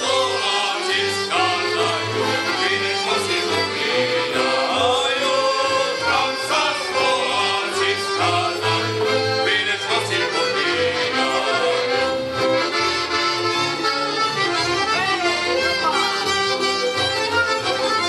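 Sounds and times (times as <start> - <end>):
voices singing: 0.0 - 12.8
folk band playing: 0.0 - 18.0.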